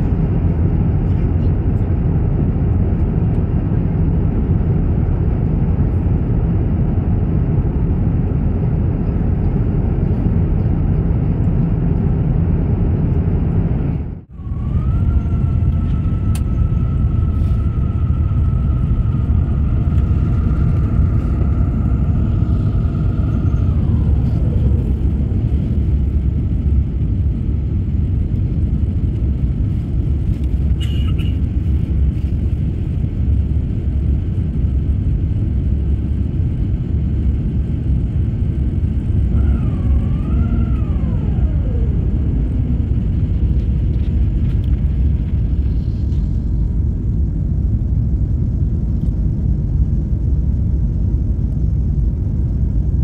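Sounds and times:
aircraft cabin engine rush: 0:00.0 - 0:53.0
faint high whine: 0:14.3 - 0:26.3.

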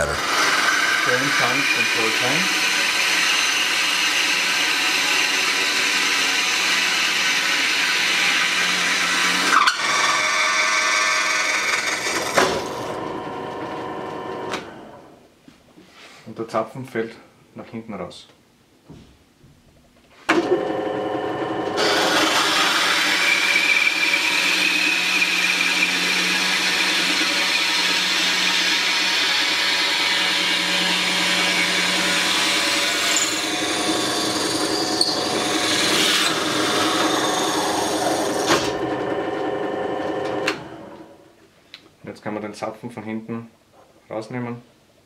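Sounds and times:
drill press motor humming: 0:00.0 - 0:15.1, 0:20.3 - 0:41.2.

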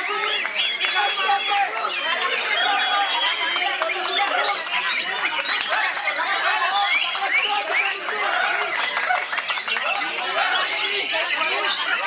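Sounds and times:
bird singing whistled phrases: 0:00.0 - 0:01.7, 0:02.3 - 0:08.0
voices: 0:00.0 - 0:12.0.

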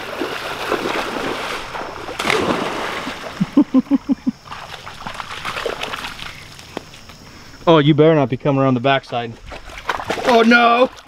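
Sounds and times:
feet splashing through floodwater: 0:00.0 - 0:07.0, 0:09.4 - 0:11.0.

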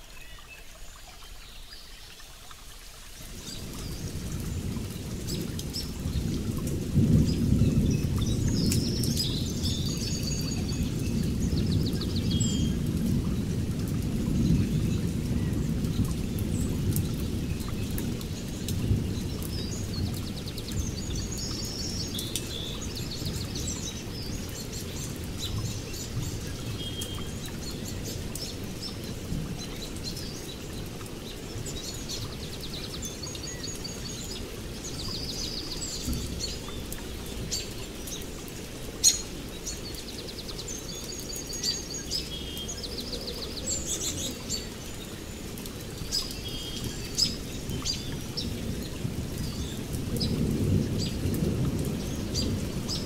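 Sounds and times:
rain rumble: 0:00.0 - 0:53.0
songbirds chirping and trilling: 0:00.0 - 0:53.0
distant thunder: 0:47.1 - 0:53.0.

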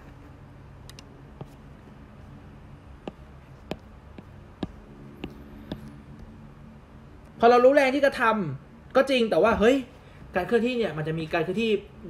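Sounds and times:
faint low hum: 0:00.0 - 0:12.0
stylus tapping on glass screen: 0:03.0 - 0:05.9.

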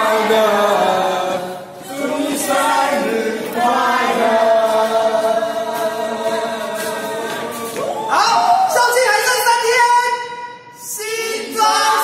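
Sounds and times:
group singing in chorus: 0:00.0 - 0:08.1, 0:10.8 - 0:12.0.

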